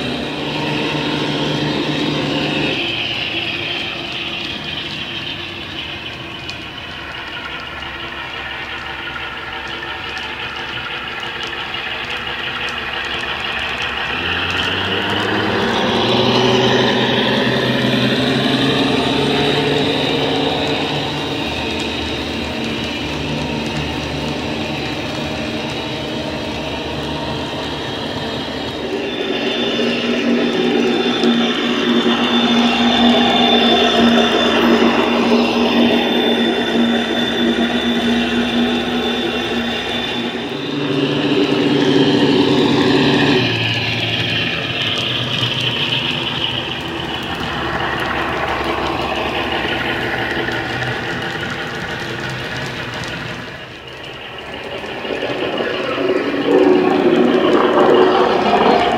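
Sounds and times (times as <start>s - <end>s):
diesel engine drone from speaker: 0.0s - 58.9s
model train running on track: 0.0s - 58.9s
steady electronic note: 15.3s - 44.2s.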